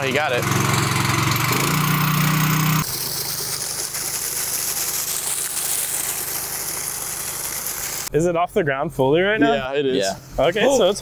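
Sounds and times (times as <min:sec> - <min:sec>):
water gushing from hose: 0:00.0 - 0:08.1
water pump engine running: 0:00.0 - 0:08.1.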